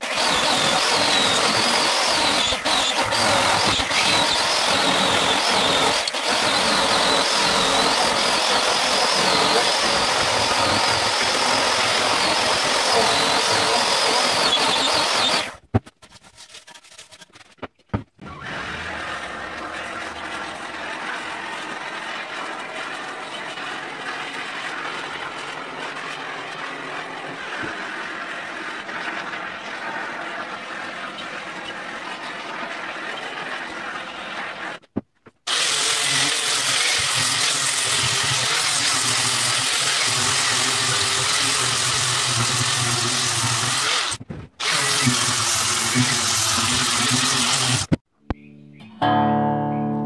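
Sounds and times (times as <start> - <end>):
angle grinder on wood: 0.0 - 15.6, 18.2 - 34.8, 35.5 - 48.0.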